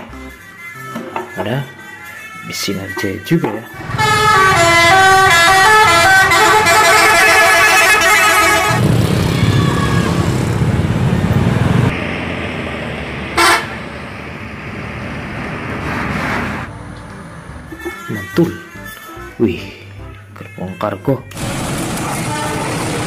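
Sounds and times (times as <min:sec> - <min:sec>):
road traffic: 0:03.6 - 0:20.3, 0:21.2 - 0:23.0
musical air horn tune: 0:03.8 - 0:08.8, 0:13.4 - 0:13.8
bus engine: 0:03.8 - 0:18.1, 0:21.3 - 0:23.0.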